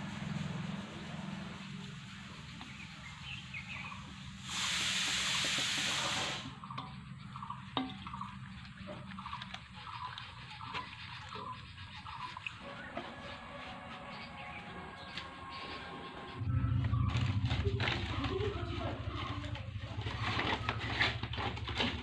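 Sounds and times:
rushing hiss: 4.3s - 6.6s.

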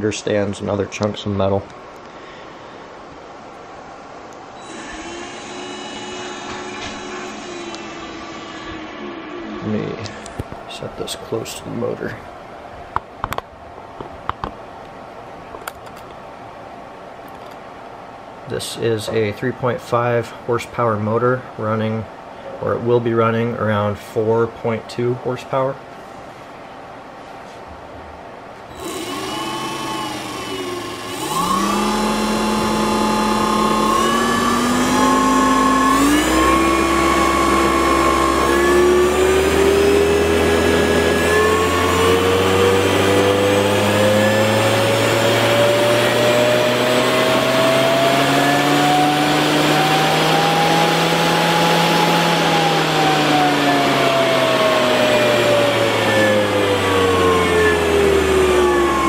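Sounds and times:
electric motor whine: 4.6s - 10.4s, 28.7s - 59.0s.

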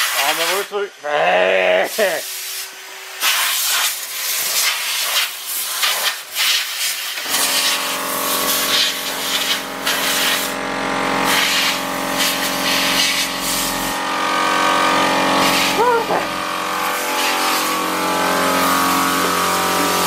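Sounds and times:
motor humming: 7.2s - 20.0s.

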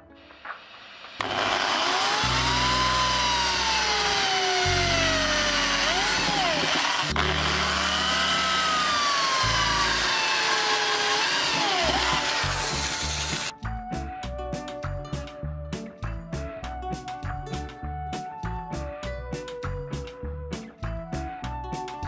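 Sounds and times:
electric drill boring into metal: 0.3s - 13.5s.

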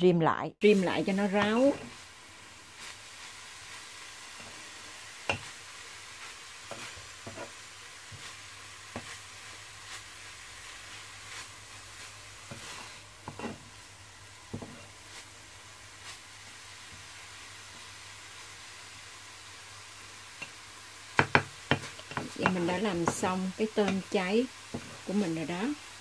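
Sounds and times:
shrimp sizzling in oil: 0.6s - 26.0s
spatula scraping a pan: 2.7s - 17.1s, 21.3s - 25.2s.

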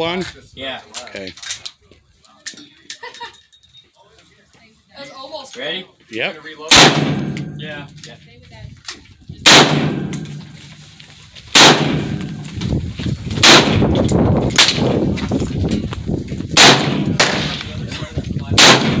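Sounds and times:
rifle shots echoing: 6.7s - 7.9s, 9.4s - 10.6s, 11.5s - 12.5s, 13.4s - 14.9s, 16.6s - 17.7s, 18.6s - 19.0s
faint gunshot cracks: 11.6s - 12.0s.

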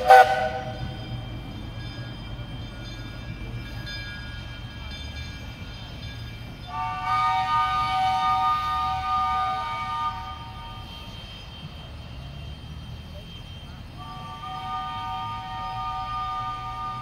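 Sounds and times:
train horn chord: 0.0s - 0.8s, 6.7s - 10.8s, 14.0s - 17.0s
low train rumble: 0.0s - 17.0s
long multi-note horn blast: 6.7s - 10.7s, 14.0s - 17.0s.

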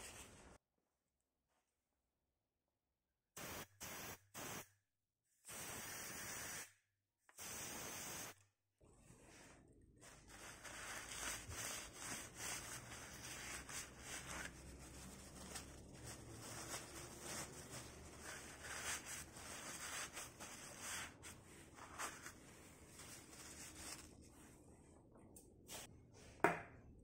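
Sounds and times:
paper towel rubbing and crinkling: 9.3s - 24.6s.

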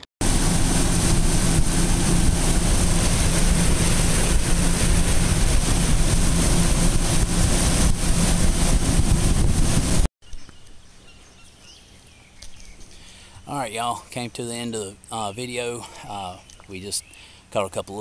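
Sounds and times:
outboard motor drone: 0.0s - 10.1s
wake rushing: 0.2s - 10.1s
wind buffeting microphone: 0.2s - 10.1s.

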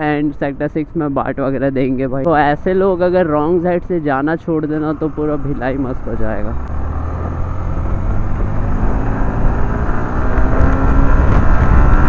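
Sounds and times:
motorcycle engine accelerating: 4.6s - 12.0s
wind rumble on microphone: 5.0s - 12.0s.

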